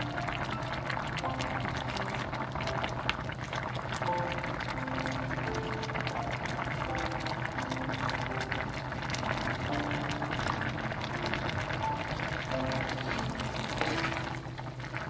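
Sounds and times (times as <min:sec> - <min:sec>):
stew bubbling in a pot: 0:00.0 - 0:15.0.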